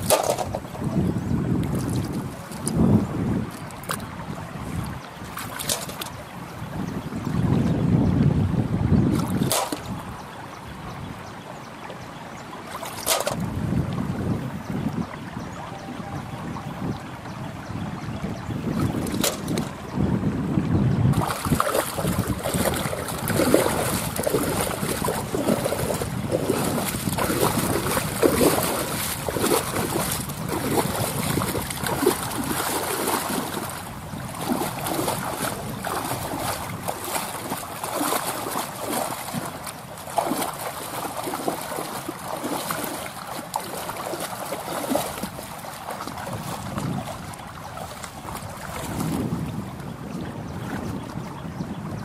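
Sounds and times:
shallow water splashing: 0.0s - 0.9s, 1.5s - 6.3s, 9.1s - 10.2s, 12.6s - 13.6s, 18.7s - 19.9s, 21.1s - 49.8s.

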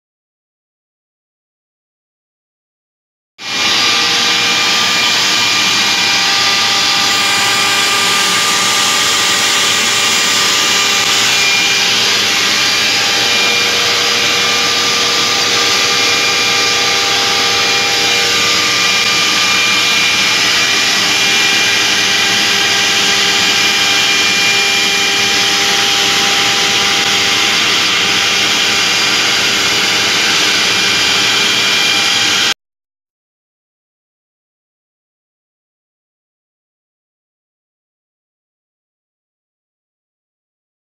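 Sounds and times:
router spindle whirring: 3.4s - 32.6s
steady whining tones: 3.4s - 32.6s.

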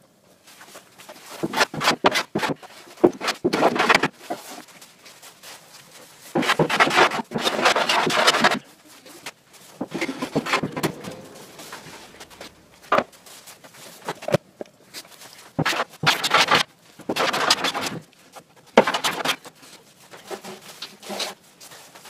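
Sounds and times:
wood scraping on plywood: 1.3s - 4.6s, 6.3s - 8.6s, 9.8s - 13.1s, 15.6s - 18.0s, 18.8s - 19.5s.

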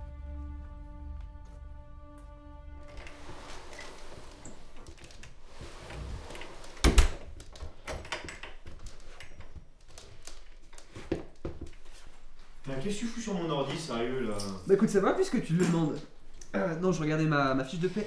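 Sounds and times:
front door shutting with thud: 6.5s - 7.4s
shuffling footsteps: 8.8s - 14.1s.

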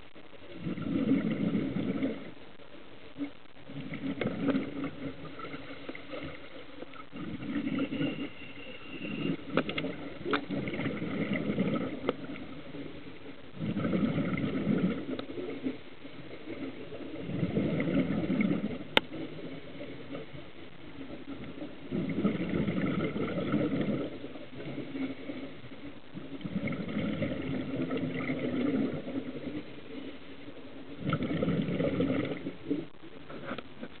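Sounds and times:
air bubbles bursting out: 0.5s - 2.4s, 3.7s - 8.2s, 9.1s - 12.6s, 13.5s - 15.3s, 17.2s - 19.4s, 21.3s - 24.8s, 26.2s - 29.6s, 31.0s - 32.6s.

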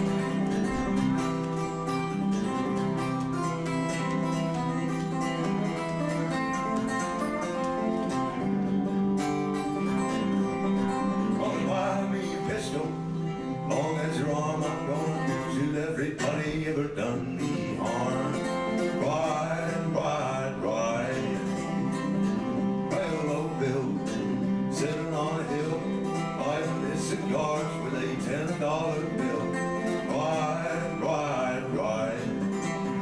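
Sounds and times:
acoustic guitar playing: 0.0s - 33.0s
man singing: 11.0s - 33.0s.

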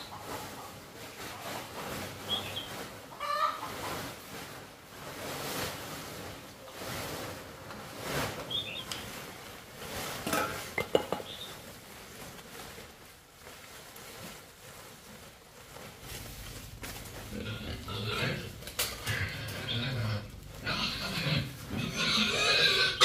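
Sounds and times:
plastic tarp rustling: 0.0s - 23.0s
piglets grunting: 17.2s - 23.0s.

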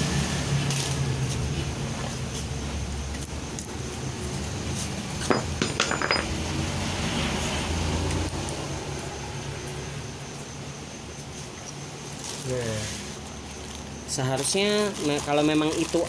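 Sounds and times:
light metal or glass clinks: 5.3s - 6.4s.

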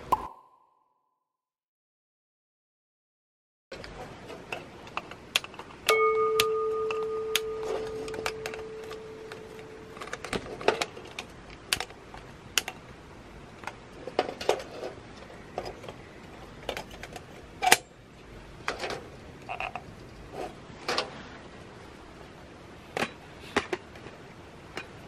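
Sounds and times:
ringing metallic tone: 5.9s - 10.1s.

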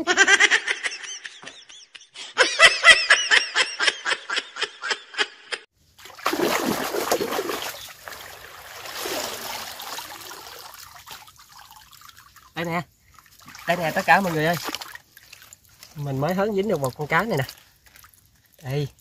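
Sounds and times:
person laughing: 0.0s - 5.6s
water splashing: 6.0s - 19.0s
water trickling: 6.0s - 19.0s.

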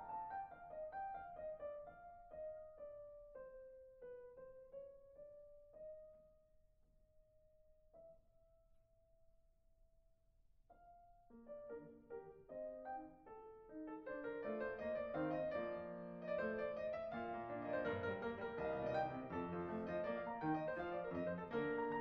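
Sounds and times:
soft solo piano: 0.0s - 6.4s, 10.7s - 22.0s.

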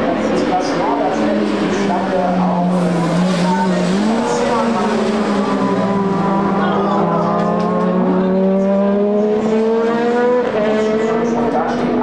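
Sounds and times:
race car engine accelerating: 0.0s - 12.0s
race car engine holding steady note: 0.0s - 12.0s.

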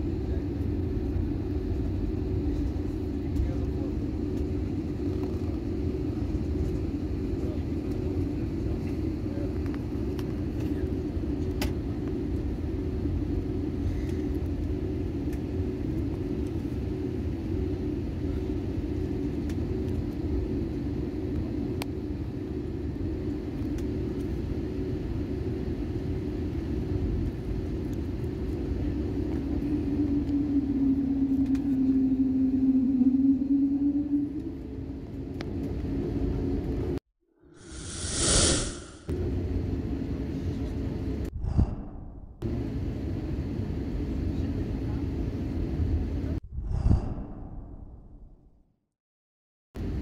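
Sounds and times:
jet engines rumbling: 0.0s - 36.9s, 37.6s - 41.2s
droning tone: 29.3s - 35.4s.

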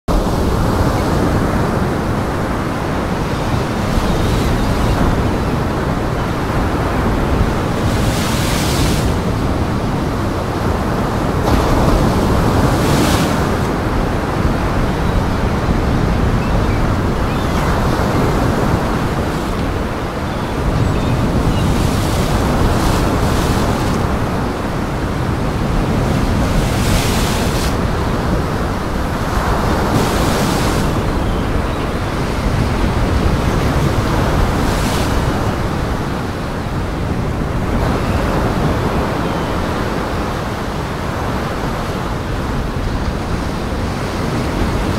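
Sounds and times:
wind: 0.0s - 44.9s
waves breaking: 0.1s - 44.9s.

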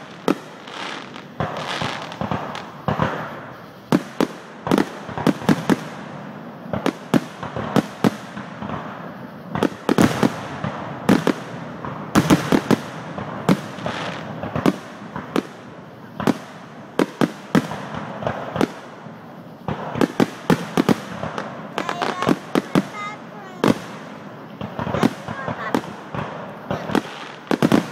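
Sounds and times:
firework shells bursting: 6.6s - 27.9s.

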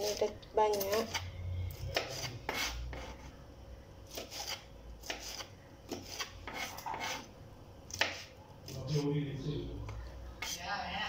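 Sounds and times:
knife slicing on cutting board: 1.9s - 3.2s, 4.1s - 7.3s.

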